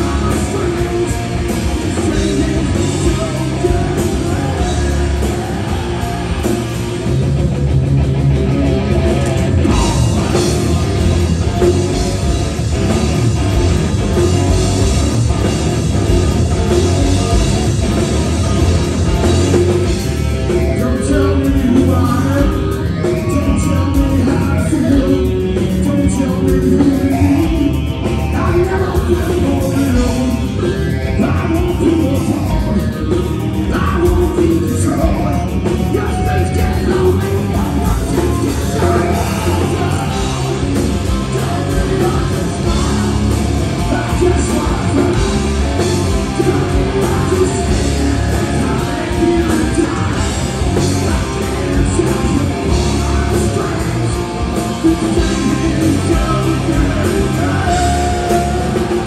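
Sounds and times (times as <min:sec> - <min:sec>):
drums: 0:00.0 - 0:59.0
electric guitars: 0:00.0 - 0:59.0
person singing into microphone: 0:20.5 - 0:59.0.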